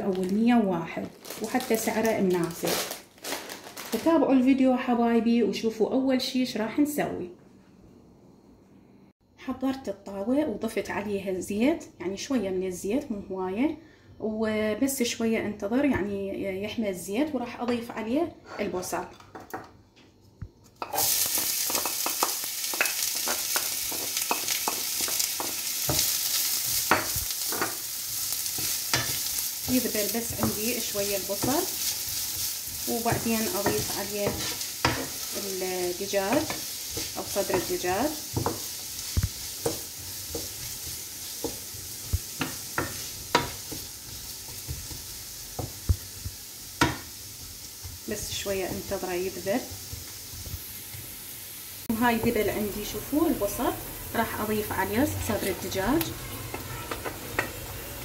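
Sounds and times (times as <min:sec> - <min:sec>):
onion sizzling in hot oil: 0:00.0 - 0:04.2, 0:20.8 - 0:58.0
wooden spoon scraping a pan: 0:20.8 - 0:46.1.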